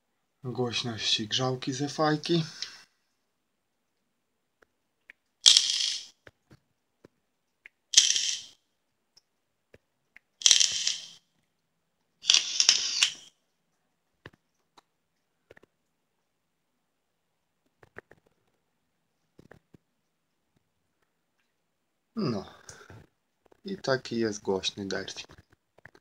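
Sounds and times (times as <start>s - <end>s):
e-cigarette coil hissing crackle: 12.2s - 13.3s.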